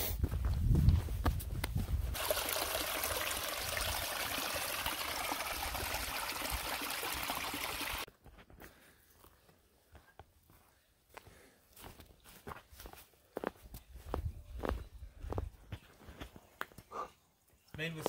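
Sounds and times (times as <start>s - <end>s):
stream trickling: 2.1s - 8.1s.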